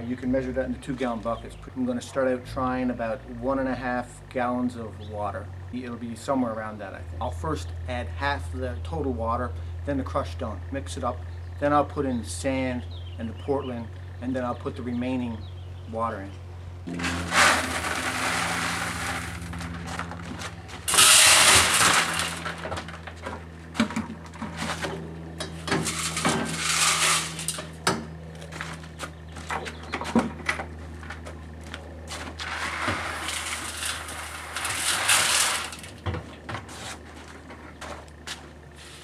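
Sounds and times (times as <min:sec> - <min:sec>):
cement mixer humming: 0:00.0 - 0:39.0
gravel pouring into mixer drum: 0:17.0 - 0:19.5, 0:20.9 - 0:22.8, 0:32.4 - 0:35.9.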